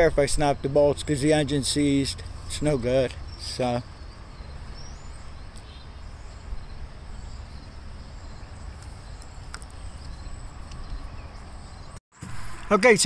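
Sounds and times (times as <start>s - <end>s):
insect chirping: 3.8s - 11.9s.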